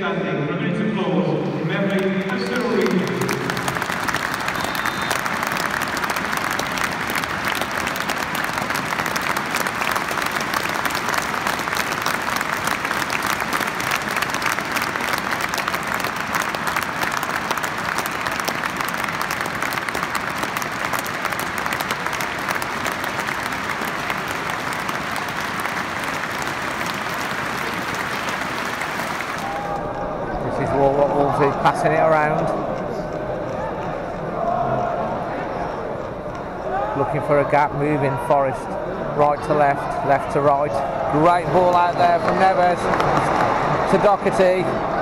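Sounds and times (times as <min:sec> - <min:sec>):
stadium crowd applauding: 0:01.7 - 0:34.9, 0:36.2 - 0:45.0.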